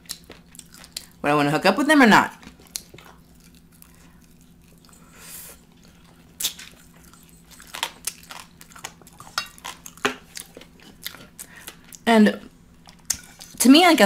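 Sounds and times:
close-miked chewing and mouth clicks: 0.0 - 1.2, 2.3 - 12.1
faint low hum: 0.0 - 14.0.

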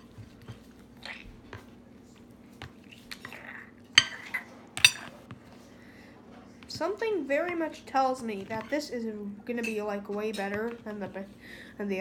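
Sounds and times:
utensil tapping and scraping dish: 4.0 - 5.5, 6.6 - 9.0, 9.6 - 11.4.

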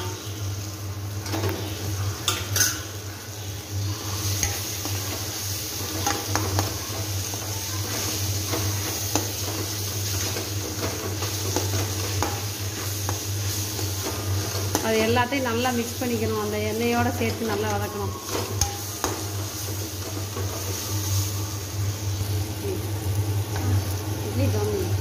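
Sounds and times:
sizzling: 0.0 - 25.0
spoon stirring in oil: 3.9 - 21.2
spoon clinking against pan: 17.2 - 19.3.

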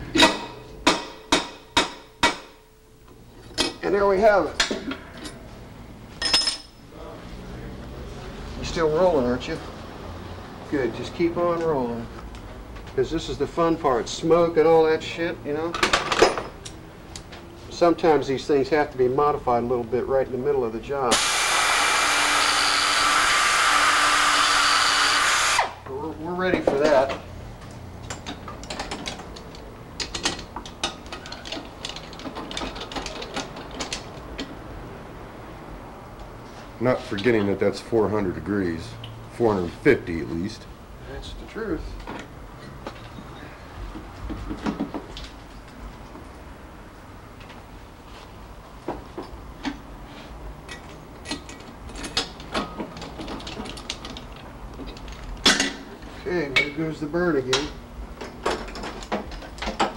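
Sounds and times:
metal tools clinking on workbench: 6.2 - 6.8, 15.7 - 16.8.

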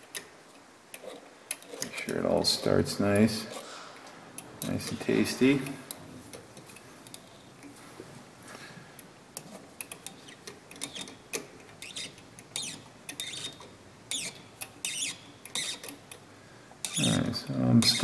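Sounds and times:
tap cutting thread squeaking: 11.8 - 16.0.

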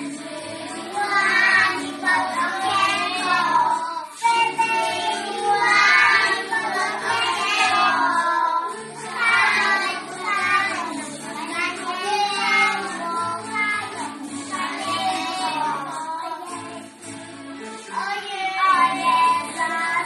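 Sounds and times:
children singing in unison: 0.0 - 20.0.

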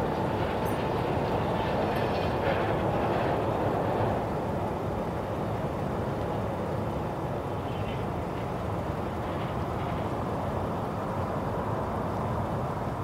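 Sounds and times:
jet engines rumbling: 0.0 - 13.0.

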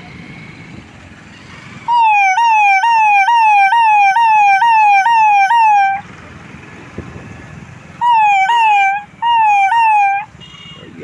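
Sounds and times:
siren yelping: 1.9 - 6.0, 8.0 - 10.3.

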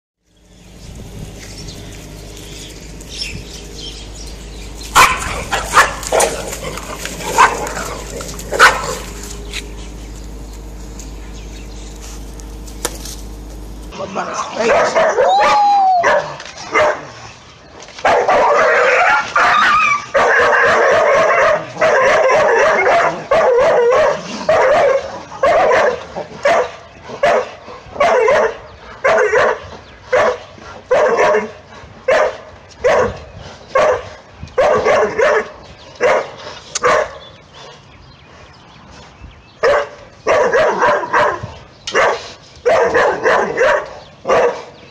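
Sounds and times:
dogs fighting: 0.7 - 17.4, 18.0 - 37.9, 39.0 - 44.9
dog yelping: 4.6 - 10.1, 14.6 - 17.0, 18.1 - 27.4, 39.6 - 41.4
dog barking: 4.9 - 9.2, 14.5 - 17.2, 18.0 - 31.5, 32.1 - 37.2, 39.6 - 44.7.

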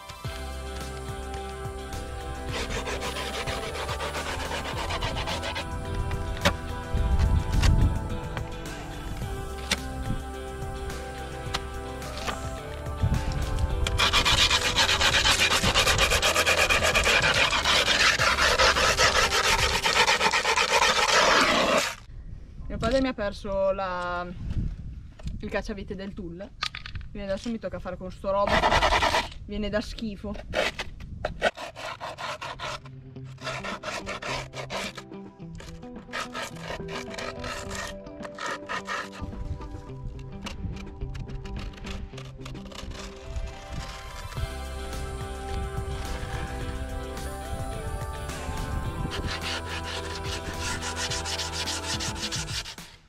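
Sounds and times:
background music: 0.0 - 21.9, 31.6 - 53.0
metal tool rasping on griptape: 2.4 - 6.7, 13.8 - 22.0, 30.6 - 35.0, 35.6 - 39.3, 40.4 - 44.5, 48.6 - 53.0
faint background music: 32.6 - 52.7.

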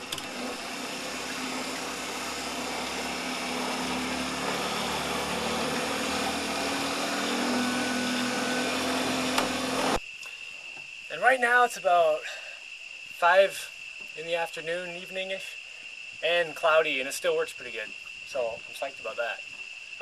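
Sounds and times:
low electric motor hum: 0.0 - 10.0.

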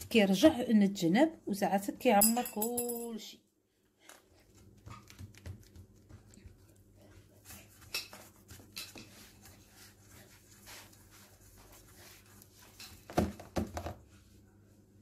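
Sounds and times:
hands patting dough: 4.4 - 14.1.

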